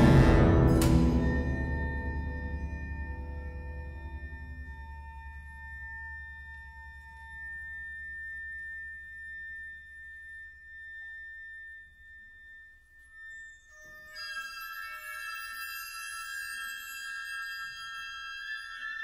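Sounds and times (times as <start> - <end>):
orchestra holding high tone: 0.0 - 4.4
low rumble: 0.0 - 5.6
bright high notes: 0.0 - 6.3.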